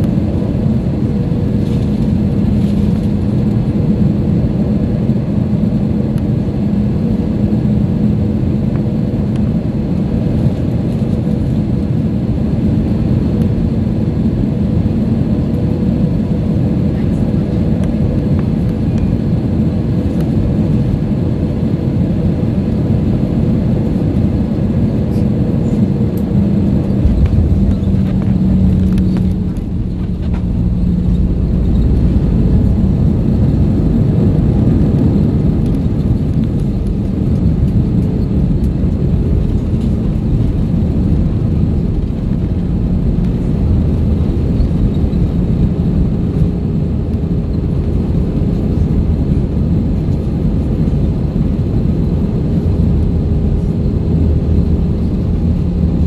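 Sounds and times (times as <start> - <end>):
aircraft engine and airflow noise: 0.0 - 56.0
deep runway rumble: 0.0 - 56.0
steady cabin hum: 24.6 - 56.0.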